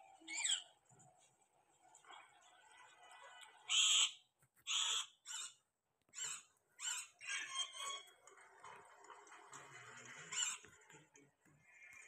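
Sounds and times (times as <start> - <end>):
parakeets squawking: 3.6 - 8.1.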